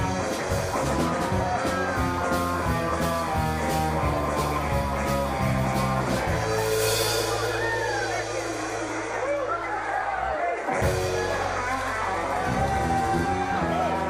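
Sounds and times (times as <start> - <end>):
electric guitar: 0.0 - 9.5, 10.1 - 14.0
drum beat: 0.0 - 9.8
bass guitar: 0.0 - 14.0.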